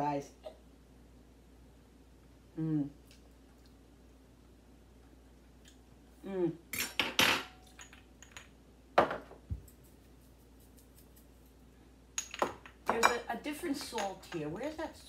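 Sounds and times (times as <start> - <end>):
person humming: 2.5 - 3.0, 6.2 - 6.6
spoon and glass jars clinking: 12.2 - 15.0.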